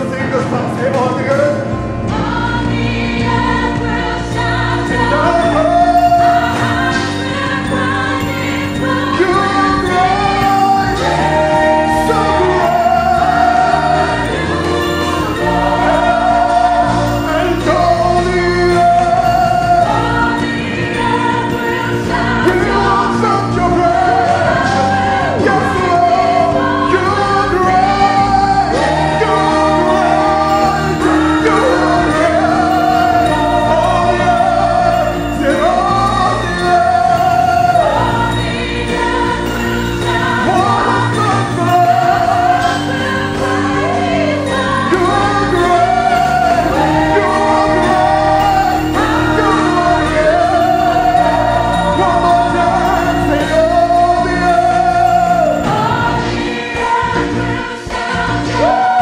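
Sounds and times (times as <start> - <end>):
group singing gospel: 0.0 - 59.0
keyboard: 0.0 - 59.0.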